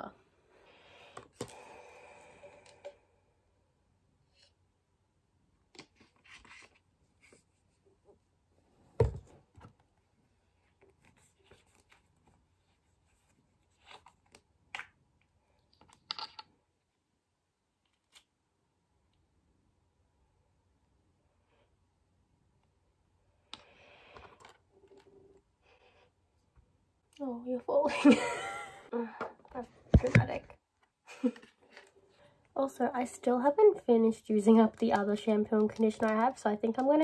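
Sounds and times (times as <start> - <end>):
plastic clicks and rustles: 34.6 - 37.0.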